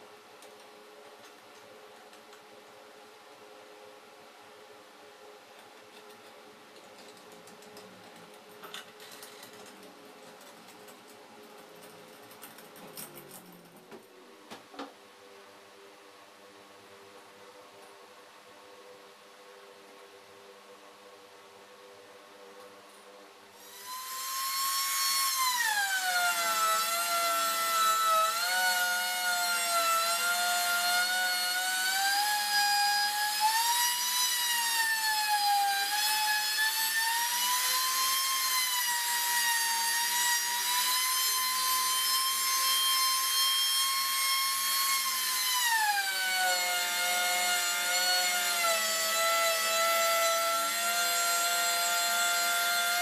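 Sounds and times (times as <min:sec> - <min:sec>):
router motor cutting plywood: 0:23.6 - 0:53.0.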